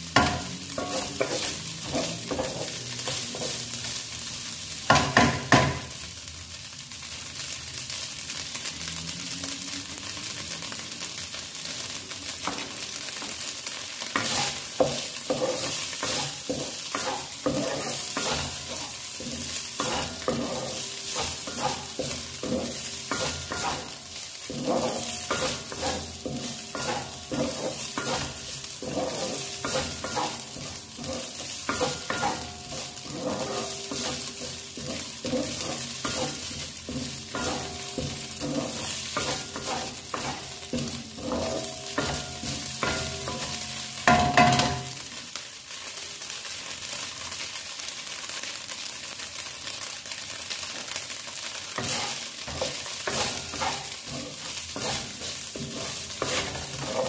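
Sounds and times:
food sizzling in oil: 0.0 - 57.0
wooden spatula scraping a pan: 0.2 - 3.8, 14.2 - 45.0, 51.7 - 57.0.

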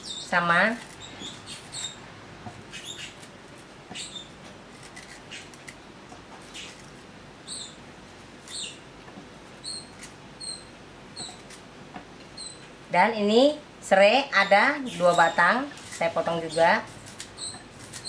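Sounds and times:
knife slicing root: 2.8 - 5.8, 17.0 - 18.0.

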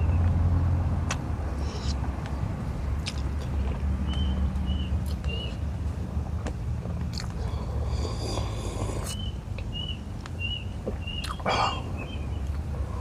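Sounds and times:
mouth clicks: 3.0 - 4.3, 7.1 - 9.9, 10.9 - 12.6
chewing: 6.4 - 9.7, 10.8 - 12.6
slurping broth: 7.4 - 9.2.

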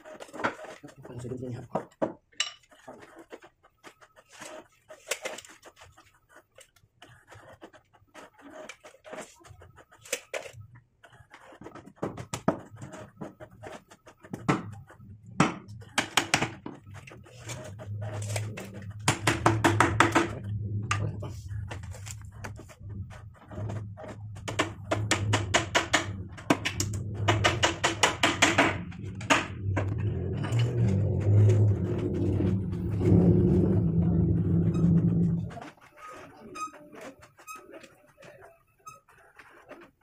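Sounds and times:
low steady rumble: 17.6 - 35.6
hammer knocking on wood: 19.0 - 20.4, 24.5 - 29.9.

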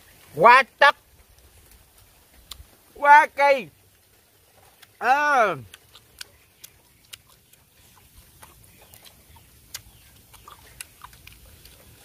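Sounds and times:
chewing and lip-smacking: 1.4 - 2.8, 4.0 - 12.0.

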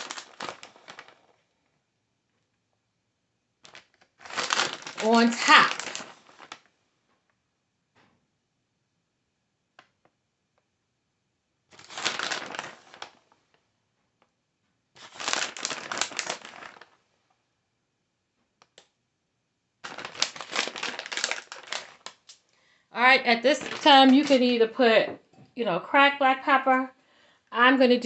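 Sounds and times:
plastic bag crinkling: 0.0 - 1.4, 3.6 - 6.7, 11.7 - 13.3, 15.0 - 17.0, 19.8 - 22.4, 23.0 - 24.8.

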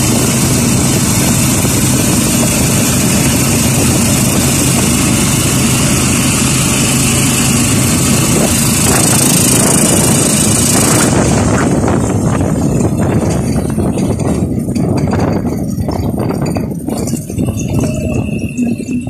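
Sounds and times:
road hiss: 0.0 - 12.3
loud wind: 0.0 - 19.0
motorcycle engine running: 0.0 - 19.0.

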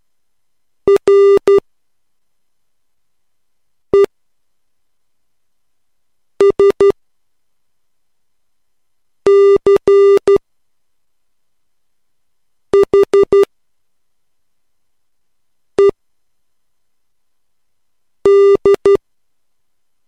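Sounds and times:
morse code beeps: 0.9 - 1.6, 6.4 - 7.0, 9.3 - 10.4, 12.8 - 13.5, 18.3 - 19.0.

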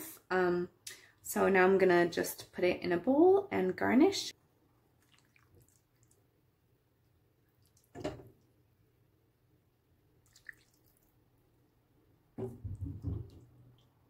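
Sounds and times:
liquid pouring and dripping: 4.9 - 6.4, 7.0 - 8.6, 10.2 - 11.2
ladle splash: 5.0 - 6.2, 10.2 - 11.2.

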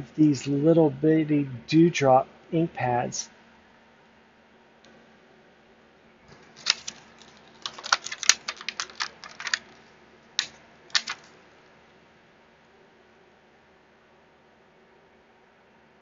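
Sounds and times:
plastic ink pads clicking: 6.6 - 9.8, 10.4 - 11.3.

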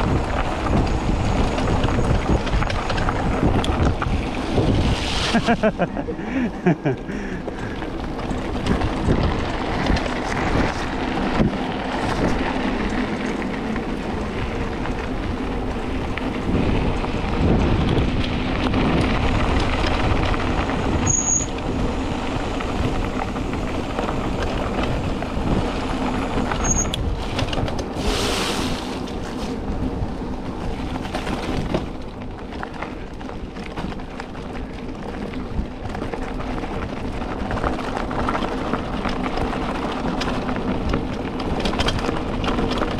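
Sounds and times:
bike rattling over bumps: 0.0 - 42.9
wind buffeting microphone: 0.0 - 42.9.

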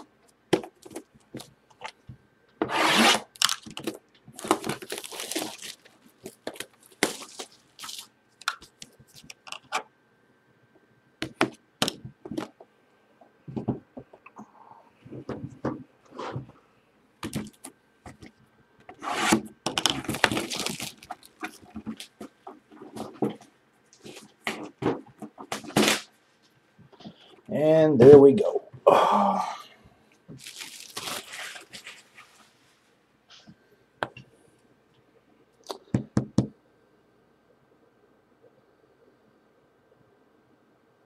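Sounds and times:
plastic wrap crinkling: 3.0 - 9.6, 19.8 - 24.7, 30.3 - 32.8.

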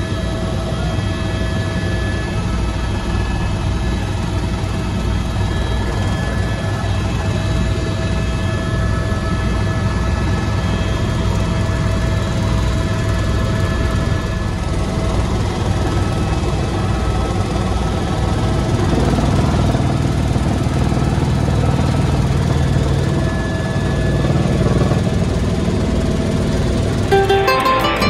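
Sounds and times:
helicopter cabin drone: 0.0 - 28.0
guitar music: 27.1 - 28.0.

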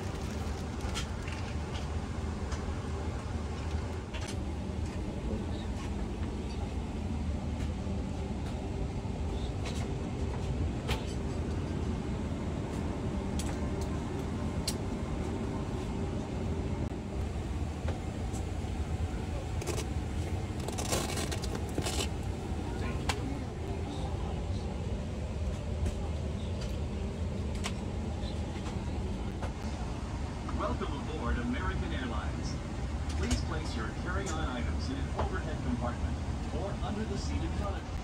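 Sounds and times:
air conditioning rushing hum: 0.0 - 38.0.

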